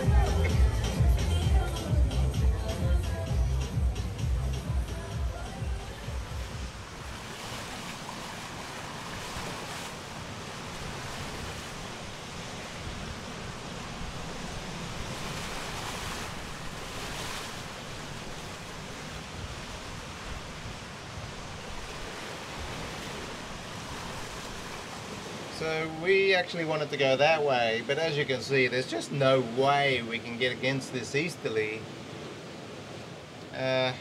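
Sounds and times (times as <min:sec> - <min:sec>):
water rushing past hulls: 0:00.0 - 0:34.0
wind buffeting microphone: 0:05.5 - 0:25.4.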